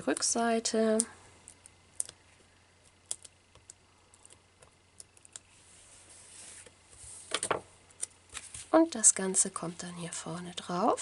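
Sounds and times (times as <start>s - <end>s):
fingernails peeling adhesive dots: 2.8s - 5.5s.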